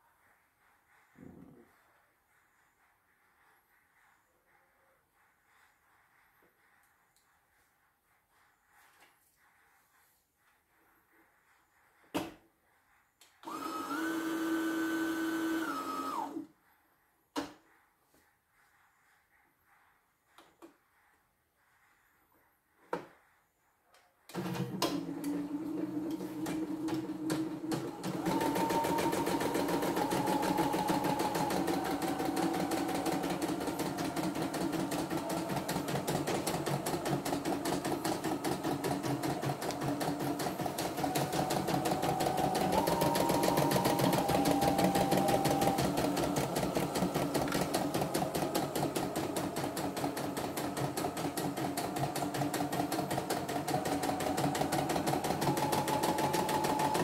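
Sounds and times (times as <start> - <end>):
embroidery machine stitching: 13.4 - 16.4, 24.3 - 57.0.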